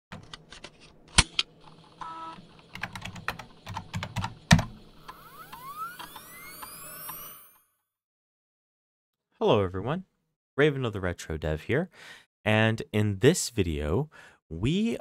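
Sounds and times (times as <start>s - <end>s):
rising electronic tones: 4.9s - 7.9s.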